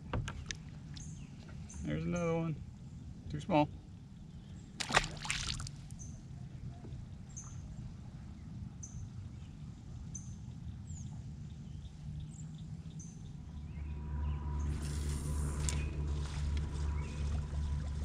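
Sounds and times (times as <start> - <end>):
faint water ambience: 0.0 - 18.0
fish splashing into water: 4.8 - 5.8.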